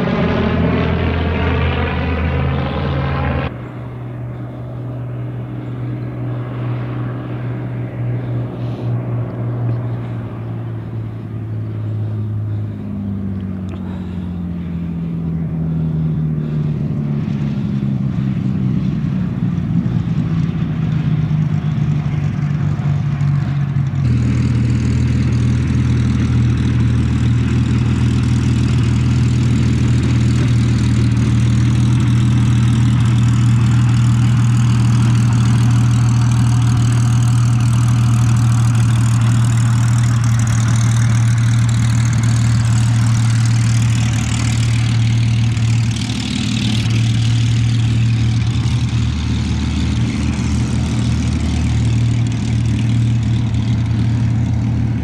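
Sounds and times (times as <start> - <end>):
propeller aircraft engine drone: 0.0 - 55.0.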